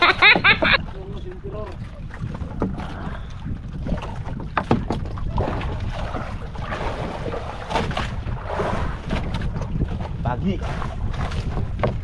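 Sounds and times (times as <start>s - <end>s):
water splashing beside boat: 0.0s - 12.0s
sharp knocks: 4.5s - 5.1s.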